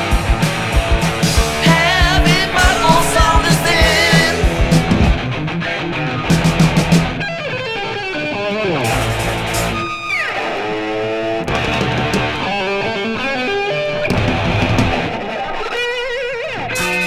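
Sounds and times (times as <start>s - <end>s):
bass and drums: 0.0s - 5.5s, 6.2s - 7.2s, 8.9s - 9.8s, 11.5s - 12.4s
distorted electric guitar lead: 0.0s - 17.0s.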